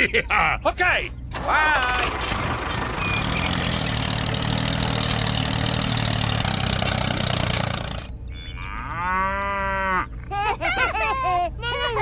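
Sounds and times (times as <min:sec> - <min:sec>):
tractor engine running: 0:01.2 - 0:08.3
cow mooing: 0:08.3 - 0:10.1.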